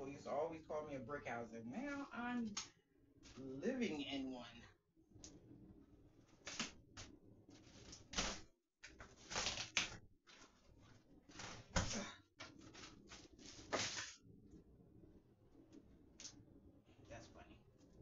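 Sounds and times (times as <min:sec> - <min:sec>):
rustling and crinkling of shade: 0:06.3 - 0:14.2.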